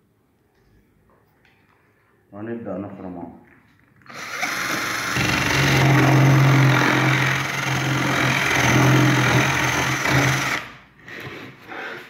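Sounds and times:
power drill boring into wood: 0:04.0 - 0:10.8.

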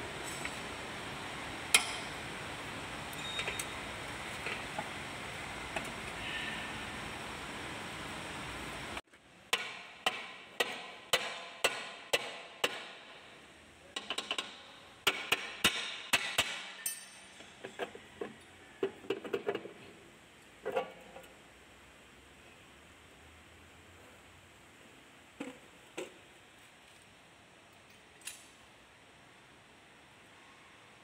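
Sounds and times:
steady hiss: 0:00.0 - 0:09.0
hammer striking metal: 0:09.5 - 0:13.2, 0:14.0 - 0:17.4.

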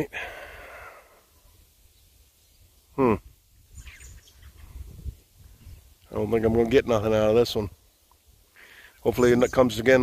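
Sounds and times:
faint bird chirps: 0:01.4 - 0:06.7
man's short vocal sound: 0:03.0 - 0:03.3.

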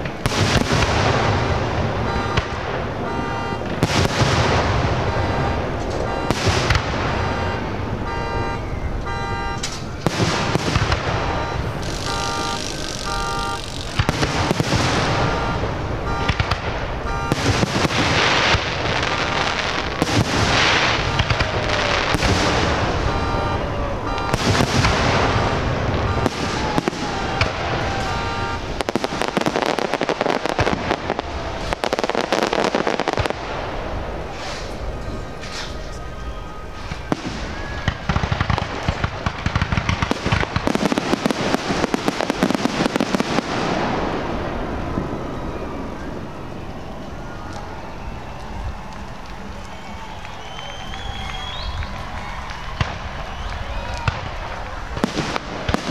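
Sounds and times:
fireworks bangs: 0:00.0 - 0:55.9
pulsed tone: 0:11.0 - 0:16.4.

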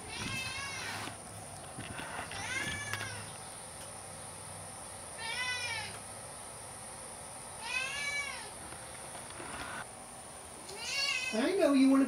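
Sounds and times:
cat meowing: 0:00.0 - 0:01.1, 0:02.2 - 0:03.3, 0:05.2 - 0:06.0, 0:07.6 - 0:08.5, 0:10.7 - 0:11.6.

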